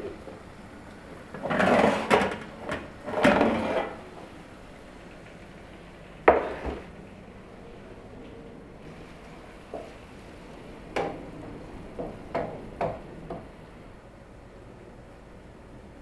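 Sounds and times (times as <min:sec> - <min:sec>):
baking tray scraping oven rack: 0:01.3 - 0:04.3.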